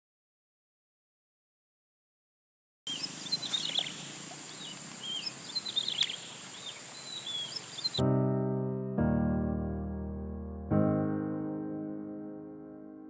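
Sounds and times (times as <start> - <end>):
birds chirping: 2.9 - 8.0
insects buzzing: 2.9 - 8.0
piano music: 8.0 - 13.0.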